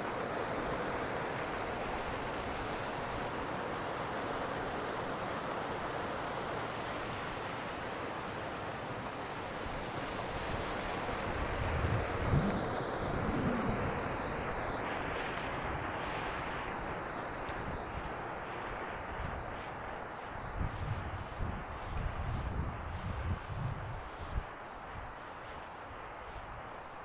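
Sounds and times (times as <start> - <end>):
river water pouring over weir: 0.0 - 19.2
wind gusts on microphone: 10.5 - 14.8, 20.4 - 25.2.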